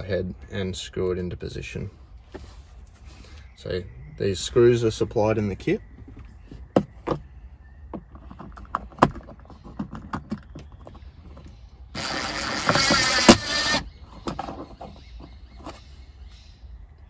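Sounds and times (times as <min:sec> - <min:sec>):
handling clicks and knocks: 0:05.9 - 0:11.6
cordless drill driving a screw: 0:12.0 - 0:13.9.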